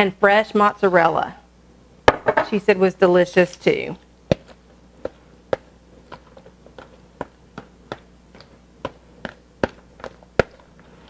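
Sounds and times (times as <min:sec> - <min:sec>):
spoon stirring wet food: 0:04.2 - 0:11.0.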